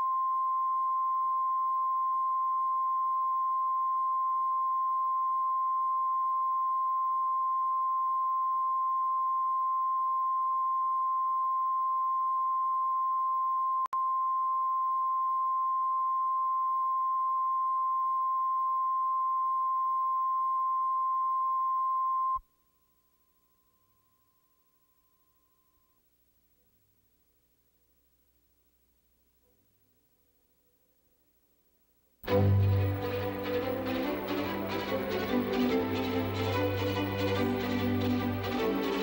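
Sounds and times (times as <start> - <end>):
steady test tone: 32.2 - 39.0.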